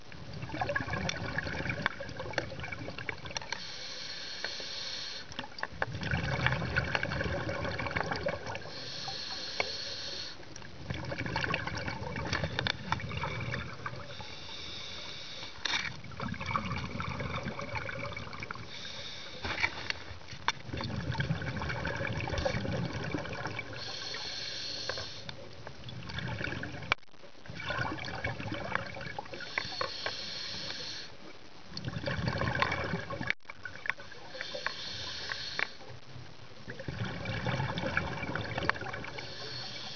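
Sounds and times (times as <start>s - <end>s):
exhaled bubbles rushing underwater: 0.0s - 3.5s, 5.4s - 8.8s, 10.6s - 14.2s, 16.0s - 18.7s, 20.6s - 24.0s, 25.8s - 29.6s, 31.7s - 34.6s, 36.7s - 39.8s
regulator inhale hiss: 3.5s - 5.4s, 8.6s - 10.5s, 14.1s - 15.9s, 18.6s - 20.2s, 23.7s - 25.4s, 29.4s - 31.2s, 34.1s - 35.9s, 39.0s - 39.9s.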